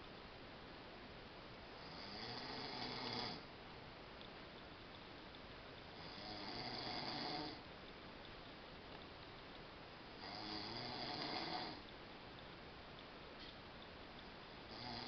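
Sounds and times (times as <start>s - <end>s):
man snoring: 1.8s - 3.4s, 6.0s - 7.6s, 10.2s - 11.8s, 14.7s - 15.0s.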